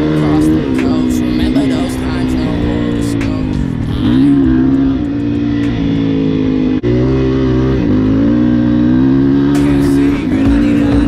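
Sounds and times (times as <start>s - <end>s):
dirt bike engine: 0.0s - 11.0s.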